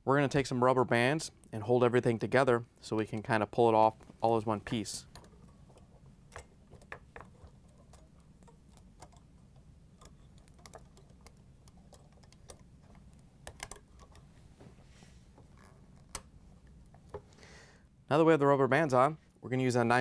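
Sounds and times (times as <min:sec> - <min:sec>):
low steady hum: 0:00.0 - 0:20.0
metal blades clicking and clinking: 0:04.2 - 0:14.3.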